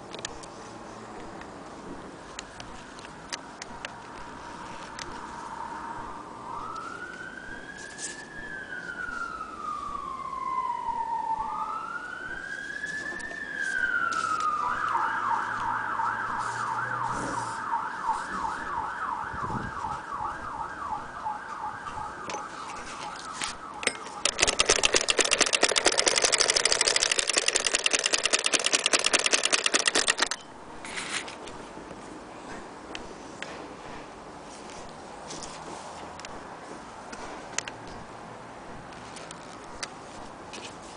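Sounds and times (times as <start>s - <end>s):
siren wailing and yelping: 4.9s - 27.9s
sewing machine clattering: 23.9s - 30.4s.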